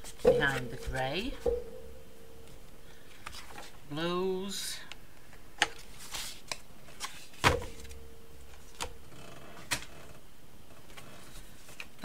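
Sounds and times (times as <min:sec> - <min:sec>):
short ringing hum: 0:00.2 - 0:02.9.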